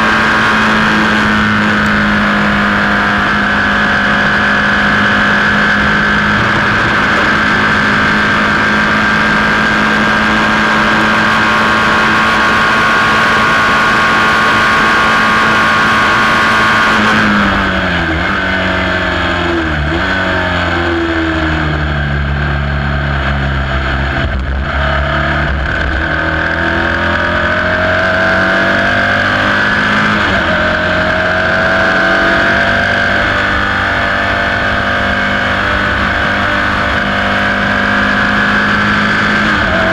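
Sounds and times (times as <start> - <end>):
racing car engine revving: 0.0 - 39.9
wind rush: 2.0 - 12.0.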